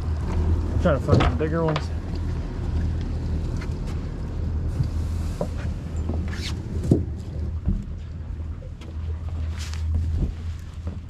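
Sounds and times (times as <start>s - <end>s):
outboard motors idling: 0.0s - 11.0s.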